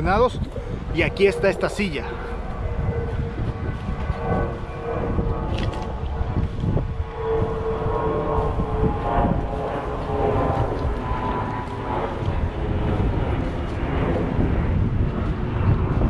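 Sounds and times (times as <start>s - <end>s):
low rumble: 0.0s - 16.0s
steady mechanical drone: 0.0s - 16.0s.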